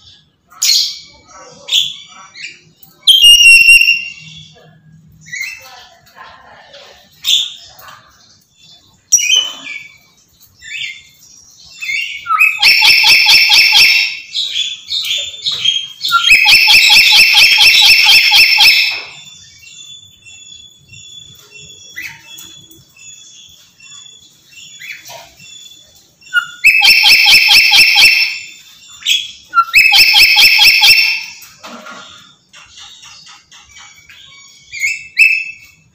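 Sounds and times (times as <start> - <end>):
soft chirps and whistles: 3.1 - 4.4, 29.0 - 31.0, 33.8 - 35.8.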